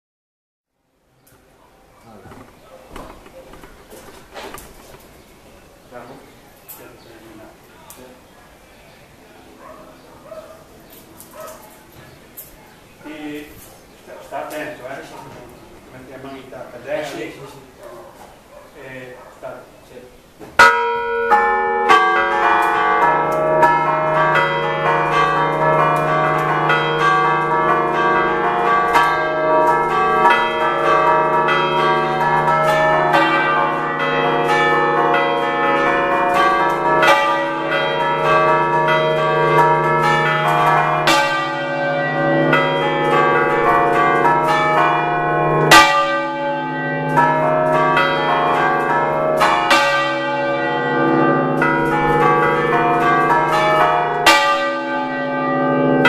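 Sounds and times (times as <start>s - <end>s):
church bells ringing: 9.4s - 17.8s, 20.6s - 56.0s.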